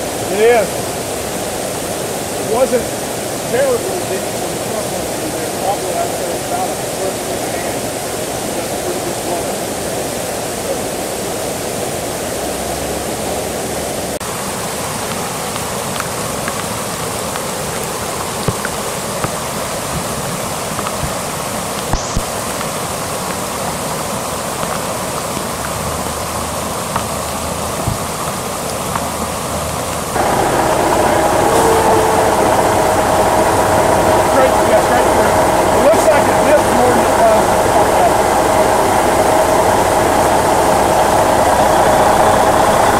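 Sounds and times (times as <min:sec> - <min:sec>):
floodwater rushing: 0:00.0 - 0:42.9
steady hum: 0:29.2 - 0:42.9.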